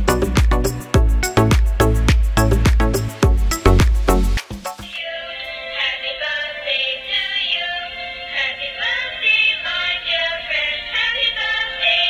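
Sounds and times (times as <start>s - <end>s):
synthetic voice singing: 4.9s - 12.0s.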